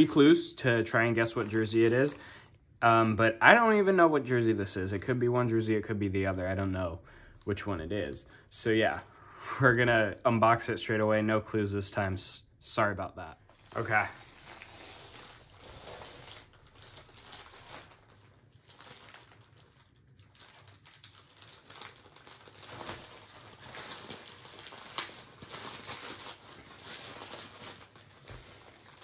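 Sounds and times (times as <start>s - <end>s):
mailer bag crinkling: 1.1s - 2.4s, 13.5s - 29.0s.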